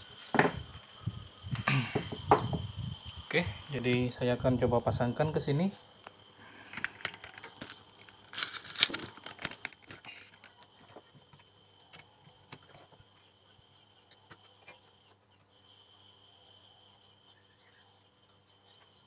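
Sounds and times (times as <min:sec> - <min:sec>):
metal parts clicking and clinking: 0:06.8 - 0:10.6.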